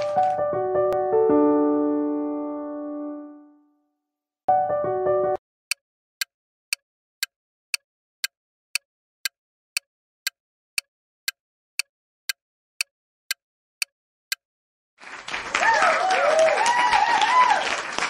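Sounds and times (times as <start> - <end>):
sharp clock ticks: 5.7 - 14.4.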